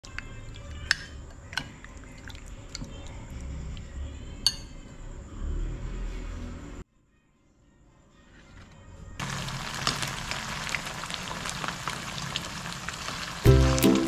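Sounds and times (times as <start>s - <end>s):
wet squelching of stirring: 0.0s - 4.7s
spoon clinking on glass: 4.4s - 4.7s.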